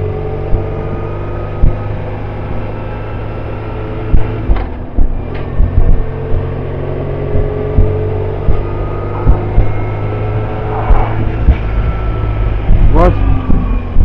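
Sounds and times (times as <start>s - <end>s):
motorcycle engine running: 0.0s - 14.0s
wind rumble: 0.0s - 14.0s
wind buffeting on microphone: 4.0s - 14.0s.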